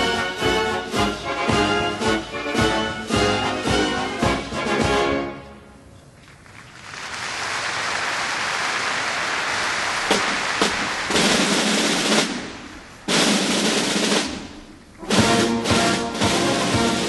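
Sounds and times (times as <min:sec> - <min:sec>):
snare drum rolls: 0:00.0 - 0:05.3, 0:08.7 - 0:17.0
band playing pitched instruments: 0:00.0 - 0:05.6, 0:10.1 - 0:17.0.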